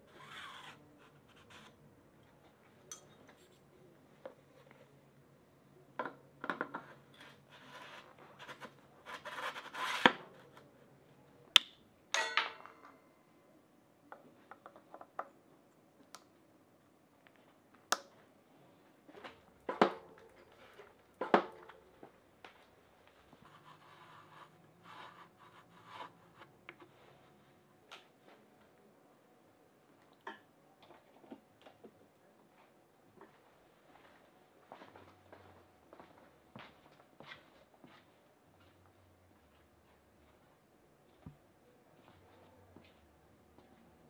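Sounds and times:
bike parts clicking and knocking: 6.0 - 6.9
metallic clink: 12.2 - 13.0.

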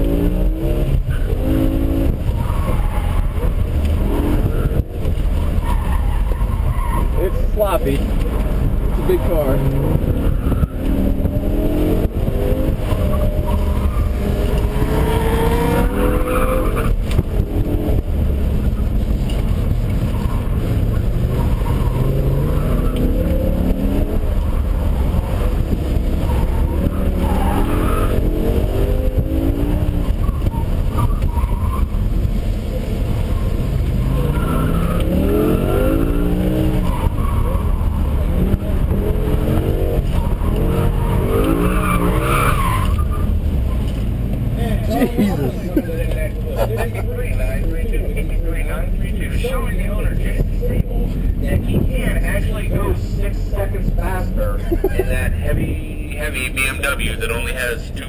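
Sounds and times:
car engine revving: 0.0 - 58.0
tyres squealing: 33.3 - 43.9.

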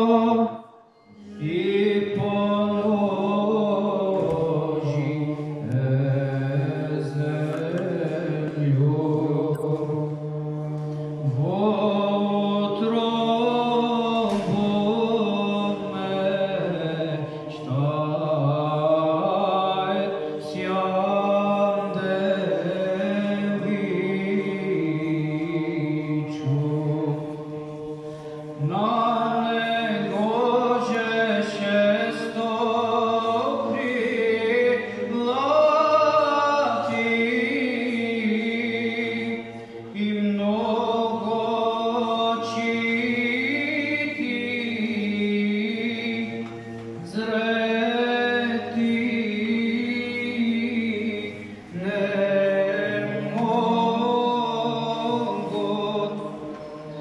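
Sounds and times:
male choir chanting a cappella: 0.0 - 57.0.

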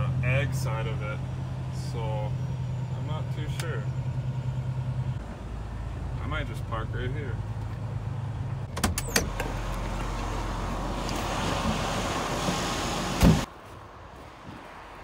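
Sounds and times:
truck engine running: 0.0 - 13.5
truck door clicks: 8.7 - 9.6
door slamming shut: 13.2 - 13.5.

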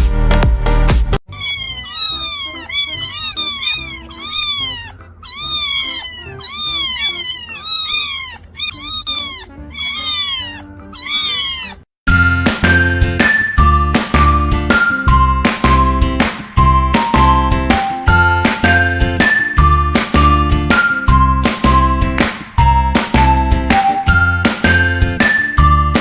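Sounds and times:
kittens mewing: 1.3 - 12.0.

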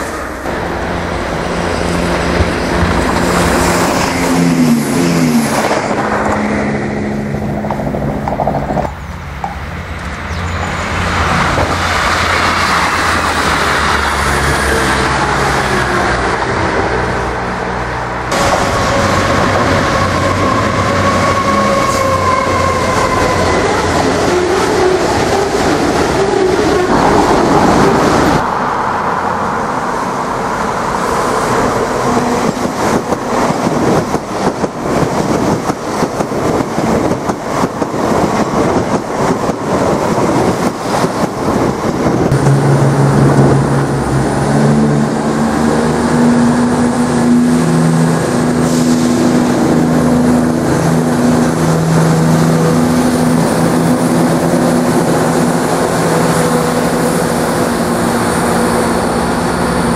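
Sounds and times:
train wheel and rail clatter: 0.0 - 16.7, 18.3 - 28.6, 29.4 - 59.9
diesel train engine drone: 0.0 - 59.9.

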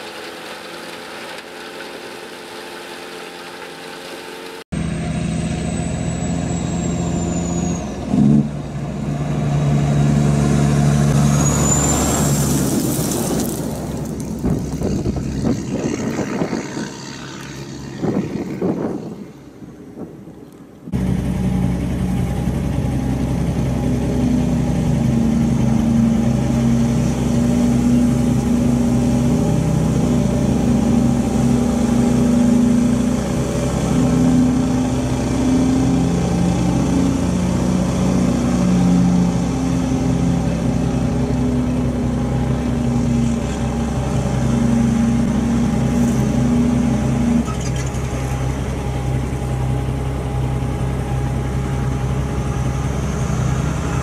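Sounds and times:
truck diesel engine running: 20.9 - 54.0.

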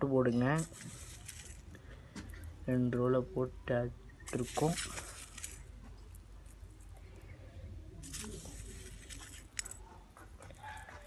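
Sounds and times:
seeds rustling on steel plate: 0.3 - 1.8, 4.3 - 6.9, 8.0 - 9.8.

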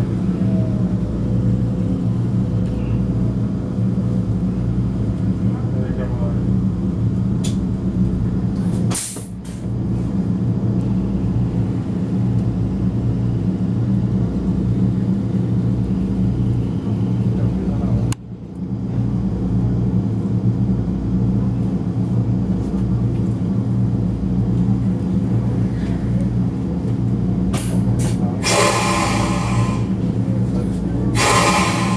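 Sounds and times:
train interior hum: 0.0 - 31.9
click: 7.4 - 7.6
short hiss: 31.2 - 31.9.

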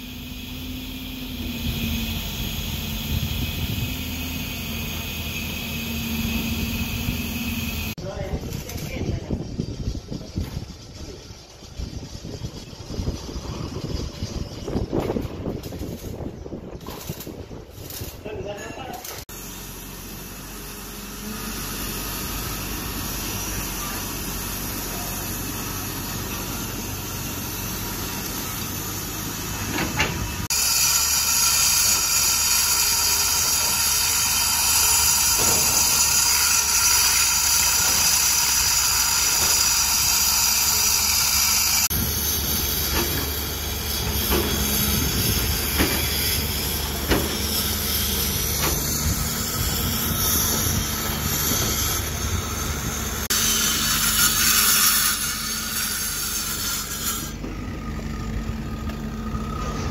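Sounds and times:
diesel engine running: 0.0 - 8.3, 9.2 - 17.7, 19.3 - 53.4, 56.9 - 59.9
low machine rumble: 0.0 - 18.3, 19.1 - 53.3, 57.3 - 59.9
angle grinder cutting concrete: 30.4 - 59.9.

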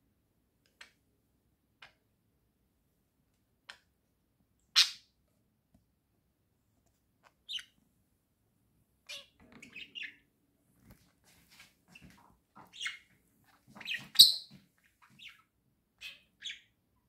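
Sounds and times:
budgerigars chirping: 9.1 - 10.2, 12.6 - 13.1, 13.7 - 16.8.

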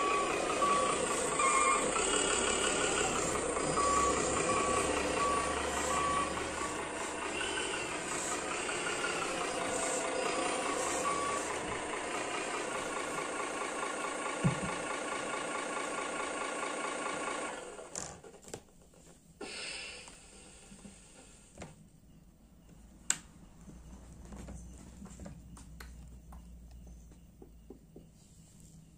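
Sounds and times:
reversing beeps: 0.0 - 12.9, 22.0 - 28.9
recorded truck sound from speaker: 0.0 - 18.2, 19.4 - 28.9.

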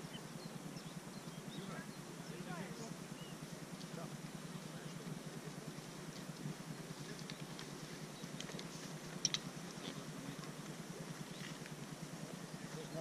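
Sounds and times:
steady low rumble: 0.0 - 13.0
light clicks and ticks: 6.1 - 11.8.

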